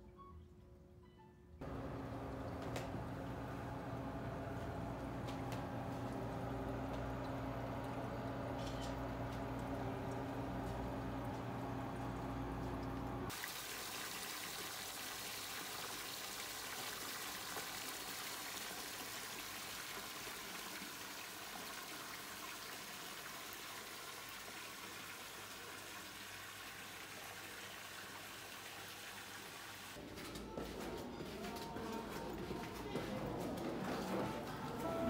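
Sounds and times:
low steady hum: 0:01.6 - 0:13.3
water pouring into a bath: 0:13.3 - 0:30.0.

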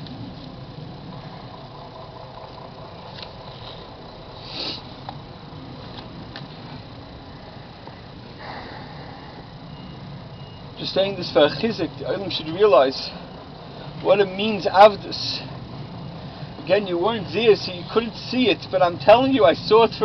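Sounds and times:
low engine-like rumble: 0:00.0 - 0:20.0
short hiss: 0:04.4 - 0:04.9.

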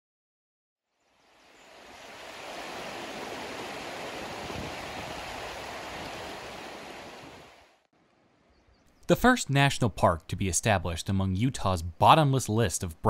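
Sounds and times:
rush of flowing water: 0:01.2 - 0:07.8.

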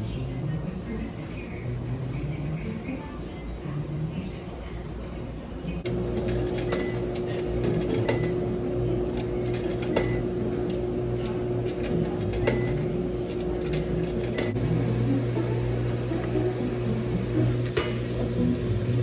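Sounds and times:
machine hum: 0:05.7 - 0:19.0.

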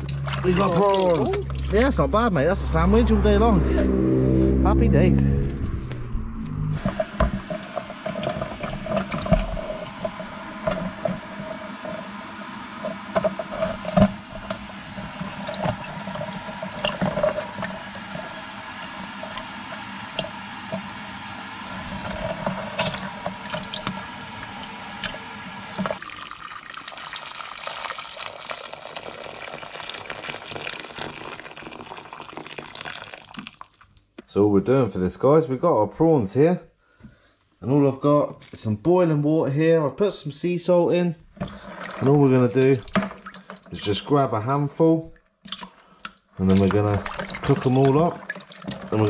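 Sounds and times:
tap water pouring into metal pot: 0:00.0 - 0:02.0, 0:12.8 - 0:20.9, 0:22.4 - 0:34.1, 0:41.4 - 0:44.2, 0:45.4 - 0:49.0
water sloshing: 0:00.0 - 0:02.8, 0:41.4 - 0:44.0, 0:45.2 - 0:49.0.

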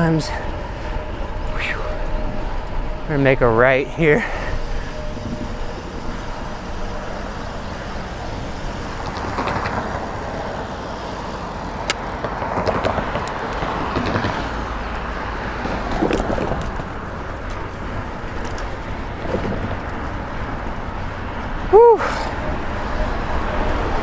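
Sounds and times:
cars passing: 0:00.0 - 0:24.0
road noise: 0:00.0 - 0:24.0
wind on microphone: 0:04.5 - 0:11.2, 0:12.2 - 0:21.3.

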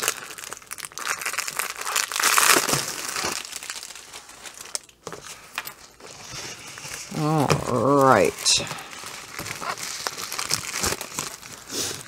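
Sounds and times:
plastic wrapping crinkling: 0:00.0 - 0:12.0.

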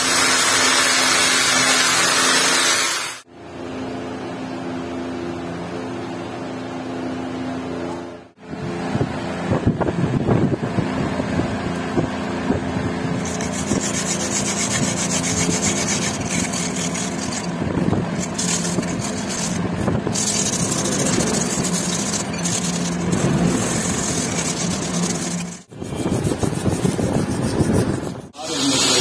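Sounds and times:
metal scrubbing with sand on concrete: 0:00.0 - 0:03.3, 0:13.2 - 0:29.0.

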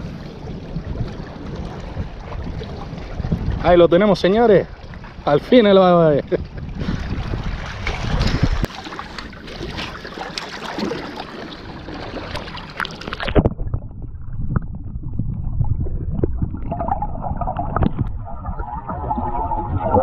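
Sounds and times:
underwater gurgling and knocks: 0:00.0 - 0:03.6, 0:06.3 - 0:20.0
wind on microphone: 0:00.0 - 0:08.7, 0:13.0 - 0:20.0
sea wash: 0:00.0 - 0:20.0.

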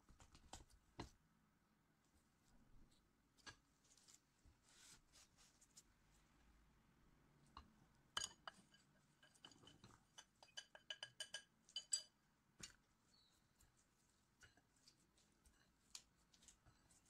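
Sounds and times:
clinks on glass bowl: 0:08.2 - 0:12.2.

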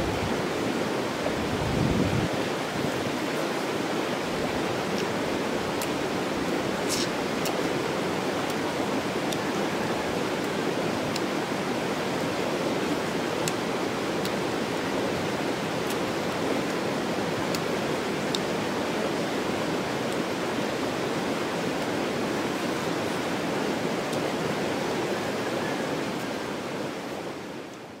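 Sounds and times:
water rushing: 0:00.0 - 0:28.0.

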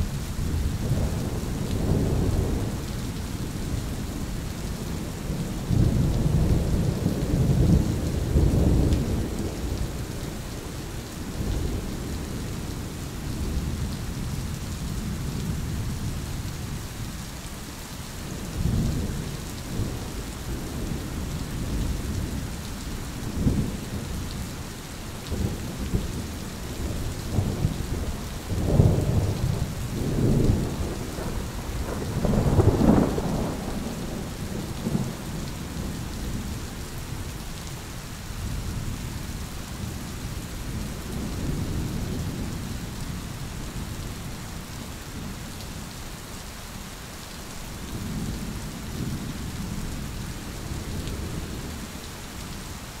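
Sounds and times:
steady rain: 0:00.0 - 0:53.0
rolling thunder: 0:25.3 - 0:36.5.

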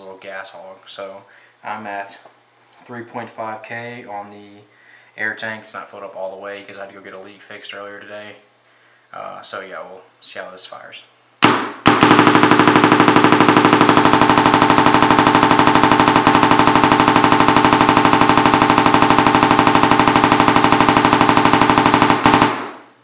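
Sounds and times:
paintball marker dry-firing: 0:11.4 - 0:23.0.

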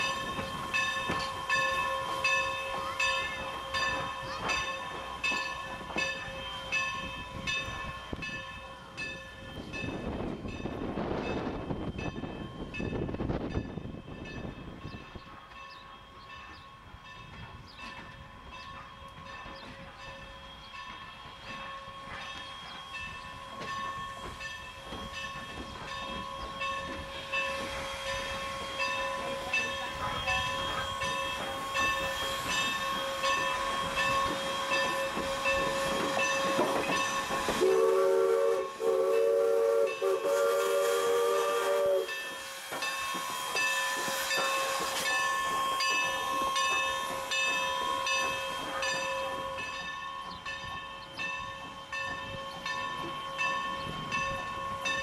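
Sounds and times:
regular ringing bell: 0:00.0 - 0:37.6, 0:42.1 - 0:55.0
chime steam whistle: 0:00.0 - 0:55.0
steam hiss: 0:16.9 - 0:55.0.

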